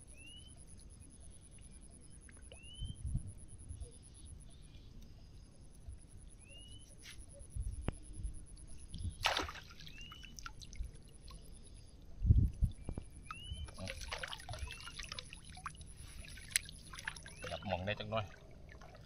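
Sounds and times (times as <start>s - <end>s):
water splashing and dripping: 9.2s - 11.5s, 13.2s - 19.0s.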